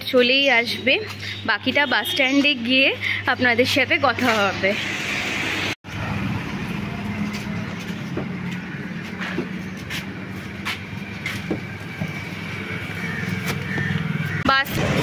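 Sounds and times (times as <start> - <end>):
street traffic: 0.0 - 15.0
car engine idling: 5.9 - 14.4.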